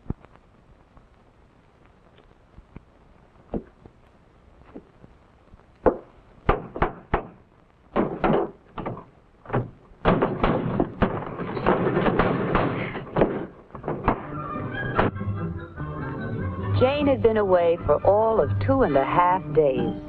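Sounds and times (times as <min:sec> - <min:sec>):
cupboard doors knocking: 0:08.0 - 0:14.3.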